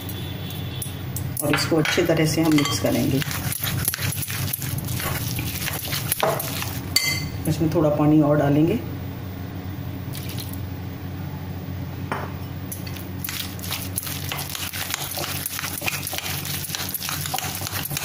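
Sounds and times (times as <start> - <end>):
steady low hum: 0.0 - 18.0
wet batter slapping: 2.6 - 7.0, 13.2 - 18.0.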